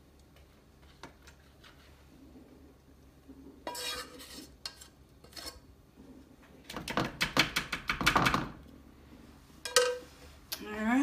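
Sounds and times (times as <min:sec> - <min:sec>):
spoon scraping saucepan: 0:03.5 - 0:05.8.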